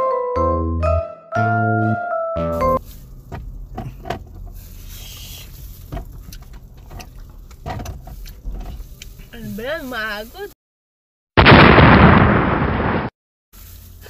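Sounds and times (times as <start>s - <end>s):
car cabin rumble: 2.5s - 10.2s
rustles: 2.8s - 10.4s, 13.6s - 14.0s.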